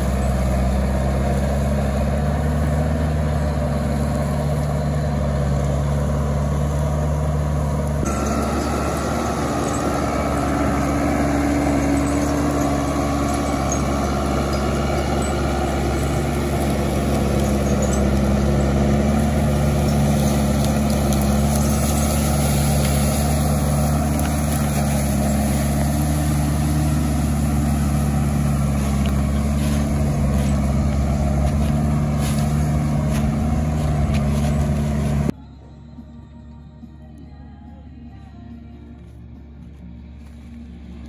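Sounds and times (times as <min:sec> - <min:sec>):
diesel engine running under load: 0:00.0 - 0:36.2.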